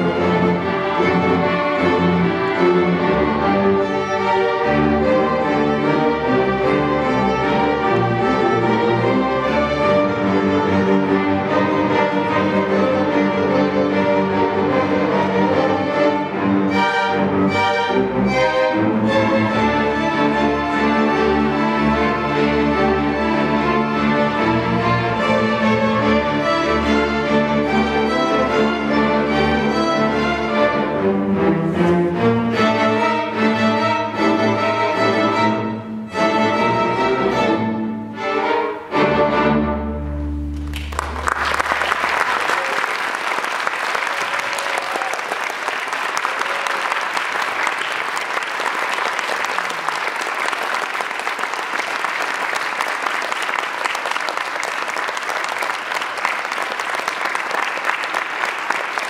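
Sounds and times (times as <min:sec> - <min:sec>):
string orchestra playing: 0:00.0 - 0:59.0
audience applause: 0:40.5 - 0:59.0.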